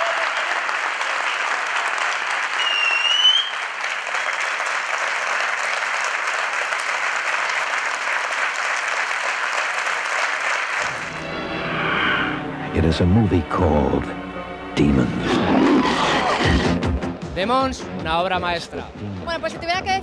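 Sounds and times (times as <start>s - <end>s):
audience applauding: 0.0s - 11.3s
rising whistle from crowd: 2.5s - 3.7s.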